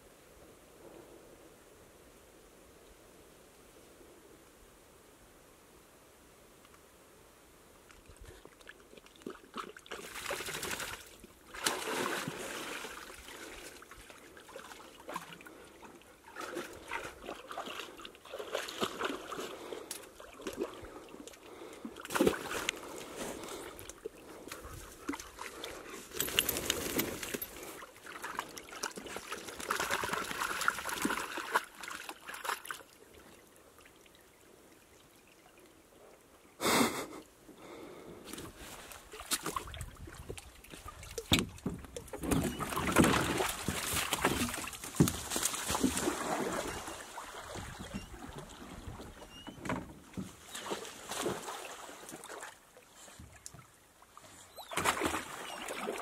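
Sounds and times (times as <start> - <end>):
water sloshing around canoe: 8.4 - 33.1, 38.4 - 56.0.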